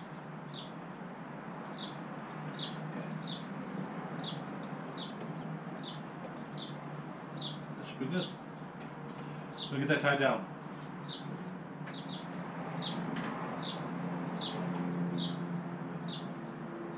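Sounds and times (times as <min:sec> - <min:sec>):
small bird chirping: 0:01.7 - 0:08.7, 0:11.0 - 0:13.0.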